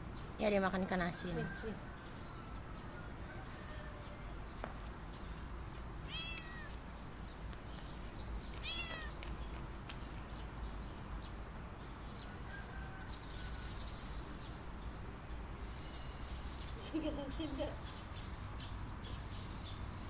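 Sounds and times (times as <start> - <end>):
cat meowing: 6.1 - 6.8, 8.6 - 9.2.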